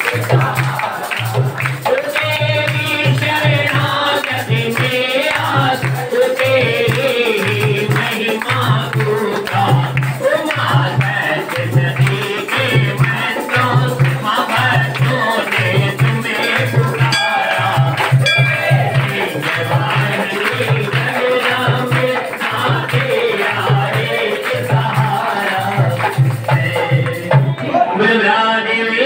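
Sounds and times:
jingling tambourine: 0:00.0 - 0:27.4
person singing: 0:11.3 - 0:26.0
low drum beat: 0:15.7 - 0:21.9.

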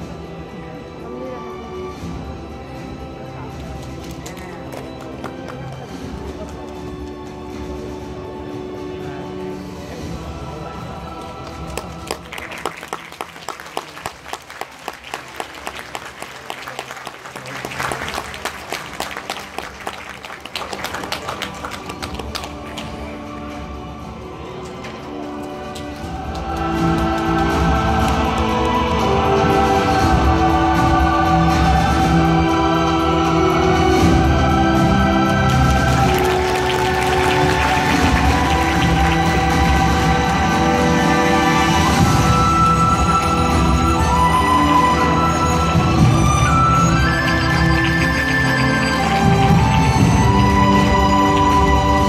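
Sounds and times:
orchestral music: 0:00.0 - 0:52.0
audience applauding: 0:03.8 - 0:07.1, 0:11.2 - 0:23.2, 0:35.2 - 0:44.4, 0:46.0 - 0:52.0.

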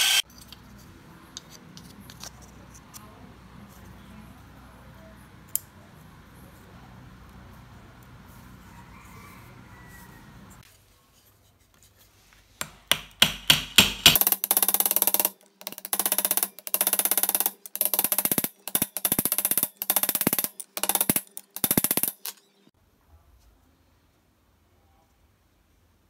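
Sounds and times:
hammer striking on metal: 0:12.6 - 0:15.2.

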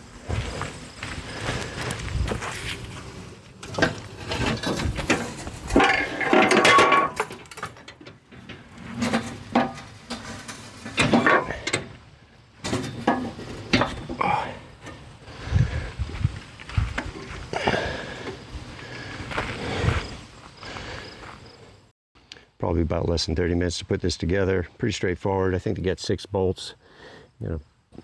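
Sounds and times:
metal clanks and rattles: 0:03.6 - 0:12.0, 0:12.6 - 0:15.1.

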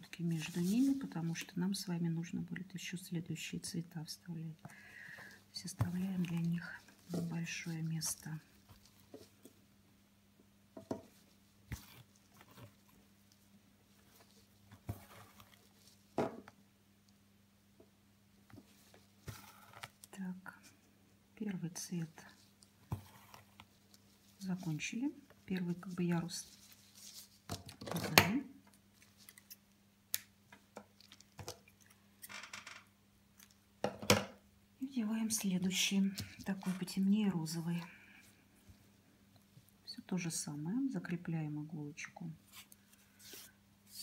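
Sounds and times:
ribbon rustling through fabric: 0:00.0 - 0:01.6, 0:05.6 - 0:09.6, 0:22.0 - 0:27.7, 0:35.4 - 0:38.0
faint steady hum: 0:00.0 - 0:44.0
needle and ribbon drawn through fabric: 0:00.2 - 0:01.5.

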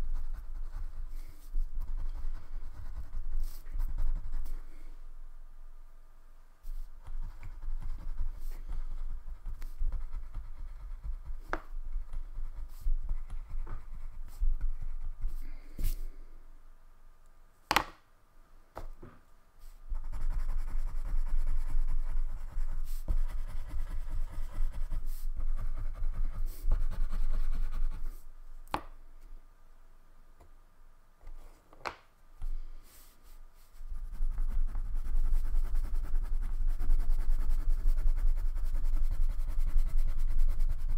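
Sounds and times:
crayon rubbing on paper: 0:00.0 - 0:04.7, 0:06.6 - 0:16.0, 0:19.9 - 0:28.2, 0:33.0 - 0:40.9.

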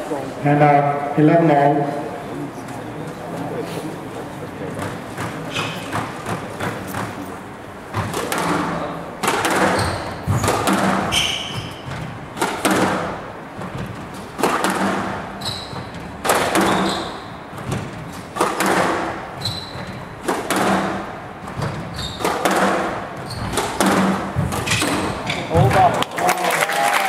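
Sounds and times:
shoes squeaking on court floor: 0:04.7 - 0:08.7, 0:09.4 - 0:12.9, 0:13.6 - 0:26.0
squash ball hits: 0:07.9 - 0:26.0.

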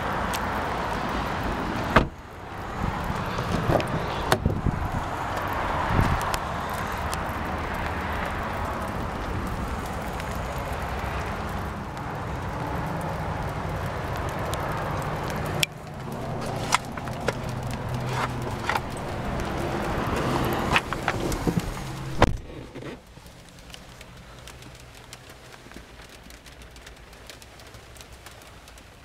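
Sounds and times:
rain hissing: 0:00.0 - 0:29.0
clicks and knocks inside car: 0:01.8 - 0:02.2, 0:15.6 - 0:28.8
car door shutting: 0:01.9 - 0:02.2, 0:20.7 - 0:23.0.

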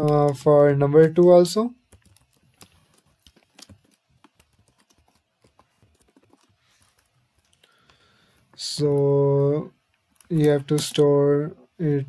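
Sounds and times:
computer keyboard typing: 0:01.8 - 0:07.7.

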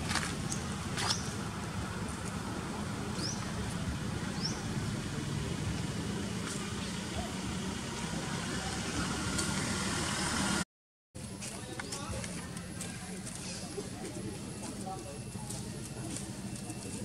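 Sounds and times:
low outdoor rumble: 0:00.0 - 0:10.6.

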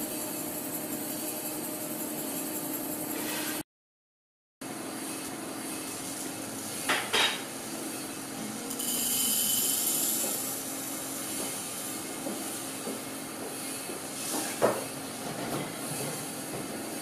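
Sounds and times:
metal pellets pouring into a dish: 0:08.7 - 0:10.7.

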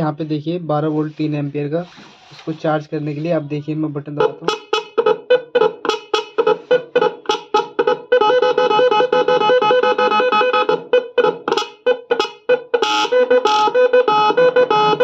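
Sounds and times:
electronic horn melody: 0:04.2 - 0:15.0.

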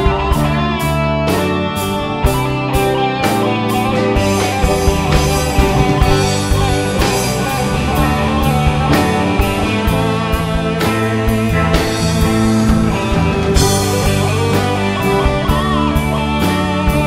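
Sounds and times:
rock band playing: 0:00.0 - 0:17.0
sharp drum or cymbal hits: 0:04.2 - 0:08.1.

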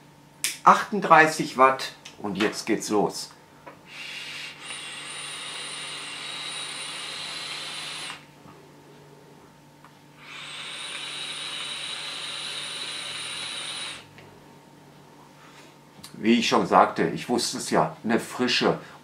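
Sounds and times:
e-cigarette draw air rush: 0:03.9 - 0:08.2, 0:10.2 - 0:14.1.

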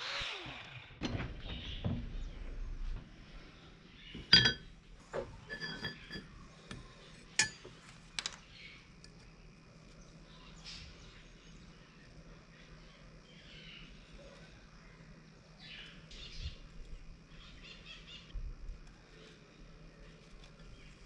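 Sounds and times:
metal pieces clinking on steel plate: 0:04.3 - 0:04.7, 0:05.5 - 0:06.3.

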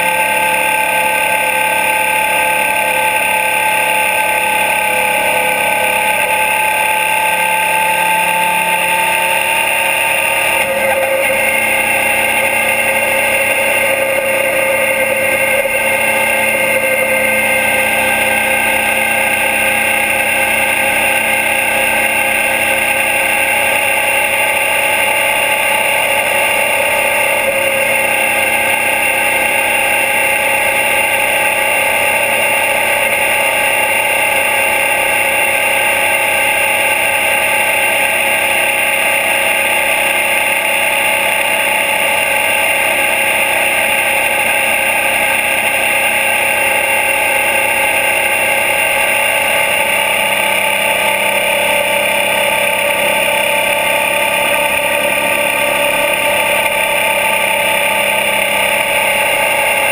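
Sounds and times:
motorcycle engine running steadily: 0:00.0 - 0:59.9.

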